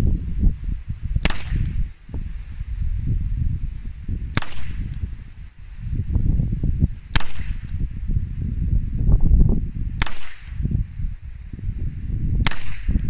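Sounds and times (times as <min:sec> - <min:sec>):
wind rumbling on microphone: 0:00.0 - 0:13.0
revolver gunshots: 0:04.3 - 0:04.9, 0:07.1 - 0:07.7, 0:10.0 - 0:10.6, 0:12.4 - 0:13.0.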